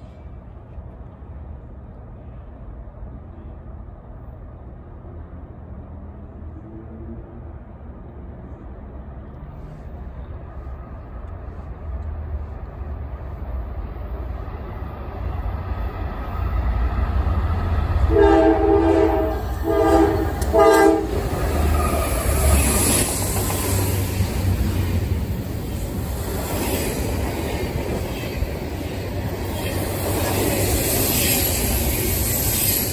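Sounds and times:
freight train rumble: 0:00.0 - 0:32.9
container cars rolling by: 0:09.4 - 0:32.9
locomotive air horn blasts: 0:18.1 - 0:21.2.

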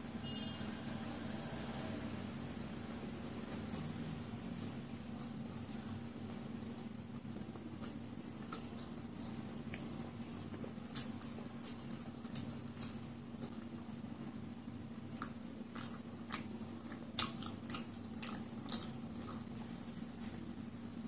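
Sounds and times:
faint steady hum: 0:00.0 - 0:21.0
chewing and mouth noise: 0:06.6 - 0:13.6, 0:15.0 - 0:20.6.

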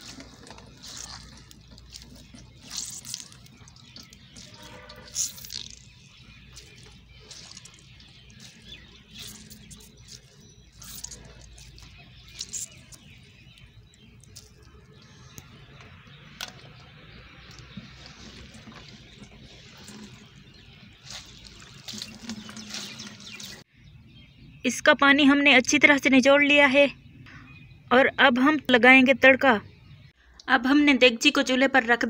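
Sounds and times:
small splashes and ticks: 0:00.0 - 0:23.6
water trickling and dripping: 0:00.0 - 0:23.6.

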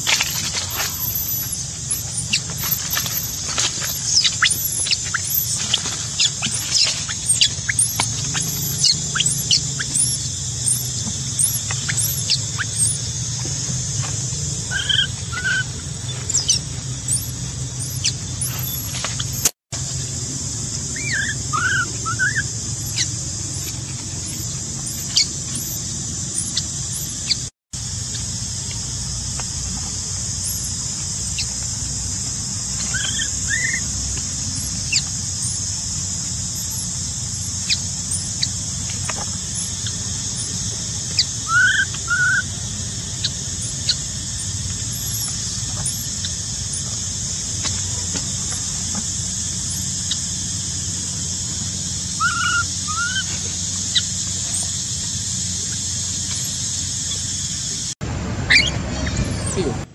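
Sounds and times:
infant monkey squealing: 0:00.0 - 0:13.1, 0:14.7 - 0:19.5, 0:20.9 - 0:27.5, 0:30.4 - 0:31.6, 0:32.8 - 0:33.9, 0:34.5 - 0:35.7, 0:36.5 - 0:42.5, 0:43.1 - 0:47.0, 0:52.1 - 0:54.8, 0:58.5 - 0:59.9
steady high hiss: 0:00.0 - 0:59.9.

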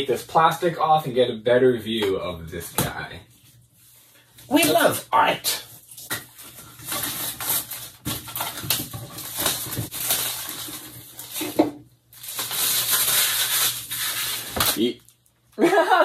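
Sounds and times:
plastic wrapping crinkling: 0:05.8 - 0:15.6.

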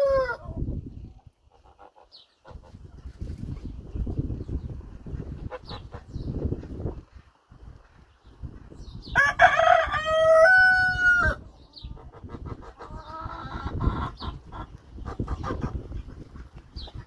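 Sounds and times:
rooster crowing: 0:00.0 - 0:00.4, 0:09.2 - 0:11.4
hens clucking: 0:00.0 - 0:03.9, 0:04.5 - 0:07.0, 0:10.3 - 0:17.0.

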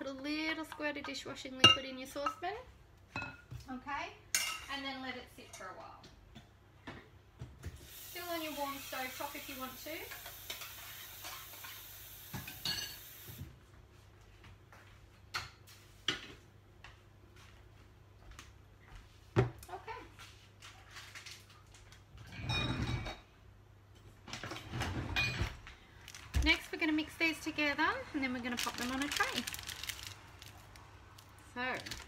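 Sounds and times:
faint hiss: 0:07.8 - 0:13.4
dishes and pans clinking: 0:12.4 - 0:13.1, 0:22.2 - 0:23.3.

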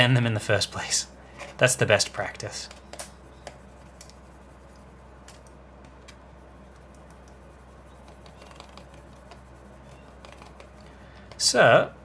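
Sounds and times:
steady low hum: 0:00.0 - 0:12.0
pencil scratching on plastic: 0:02.7 - 0:05.1, 0:06.4 - 0:11.5.

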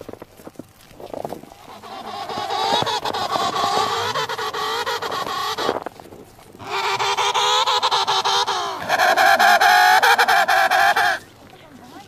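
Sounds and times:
penguin calling: 0:01.5 - 0:06.0, 0:06.6 - 0:11.3.

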